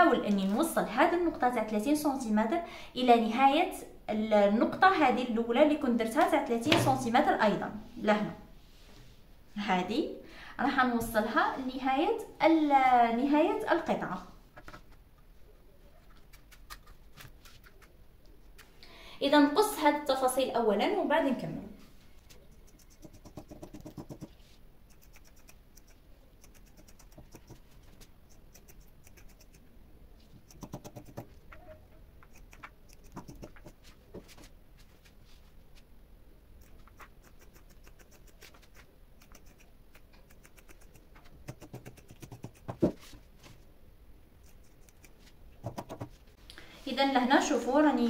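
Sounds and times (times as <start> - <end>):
scissors snipping fabric: 24.9 - 27.6, 28.3 - 29.6, 30.4 - 31.4, 32.2 - 33.8, 36.6 - 43.0, 44.4 - 46.1.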